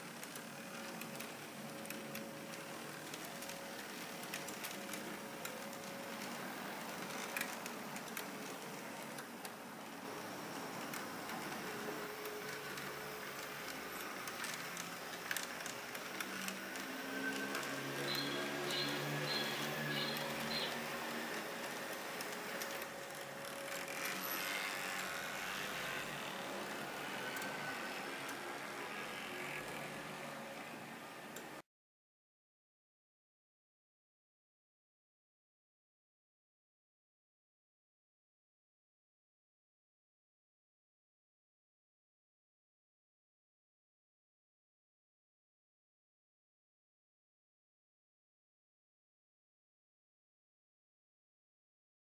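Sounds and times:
model train wheels clicking: 0.0s - 30.7s
faint motor whine: 0.0s - 31.6s.

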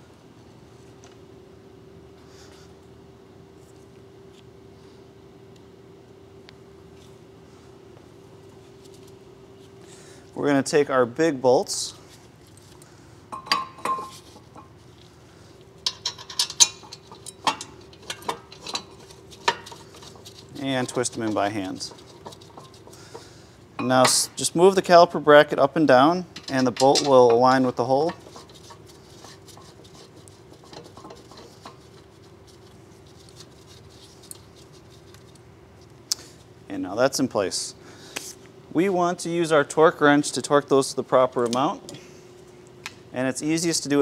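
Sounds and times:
faint hum: 0.0s - 44.0s
metal clinks and knocks: 15.8s - 21.2s
metal clicks and scraping: 15.8s - 23.3s, 26.4s - 32.1s.

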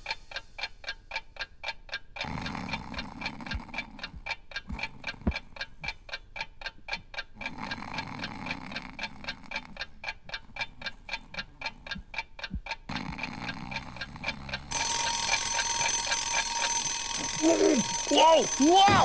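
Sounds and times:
alarm clock ticking: 0.0s - 19.0s
alarm clock bells ringing: 14.7s - 19.0s.

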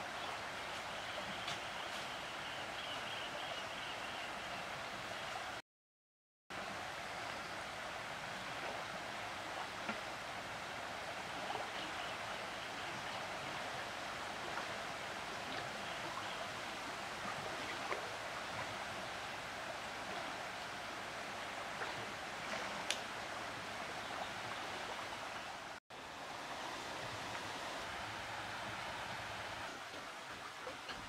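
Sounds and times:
river rushing: 6.6s - 31.0s.

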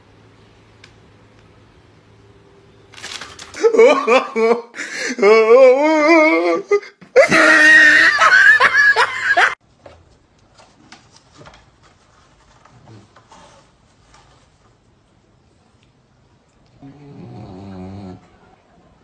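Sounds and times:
man laughing loudly: 3.6s - 9.6s.

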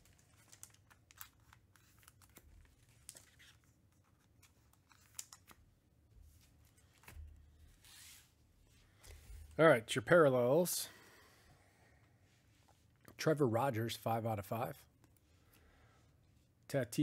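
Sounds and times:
handling cards and plastic sleeves: 0.0s - 9.6s, 14.9s - 16.6s.

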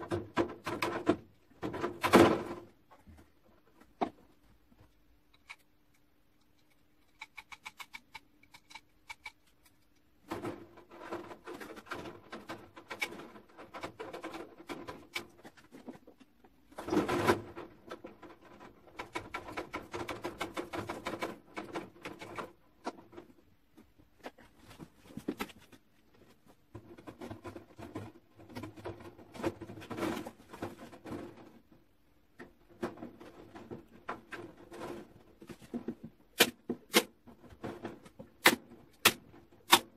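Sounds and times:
wire mesh rattling and scraping: 10.2s - 16.0s, 16.7s - 23.4s, 26.7s - 31.8s, 32.6s - 36.1s.

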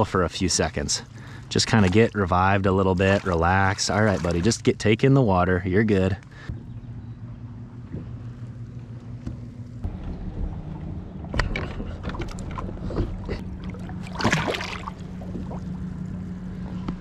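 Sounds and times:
water splashing: 0.0s - 5.5s, 9.8s - 16.9s
motor humming: 6.2s - 17.0s.

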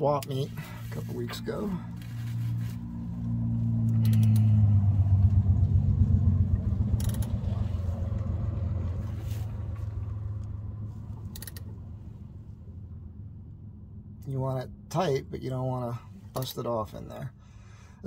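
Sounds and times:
engine rumble: 0.0s - 18.0s
ratchet clicking: 3.9s - 4.6s, 7.0s - 7.4s, 11.3s - 11.7s.

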